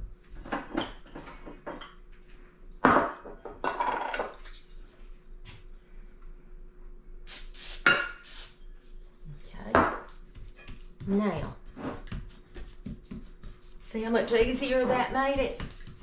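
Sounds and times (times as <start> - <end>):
items set down on wooden countertop: 2.8 - 4.4
aerosol spray can hiss: 7.3 - 8.6.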